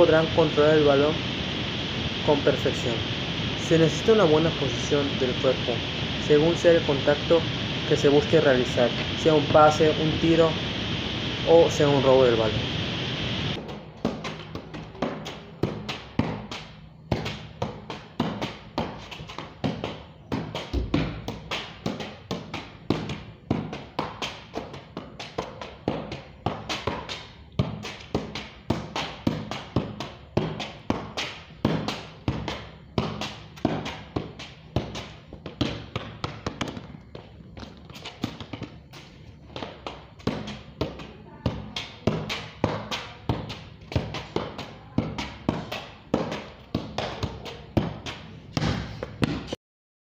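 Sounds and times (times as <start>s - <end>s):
football thumping on foot: 13.6s - 49.6s.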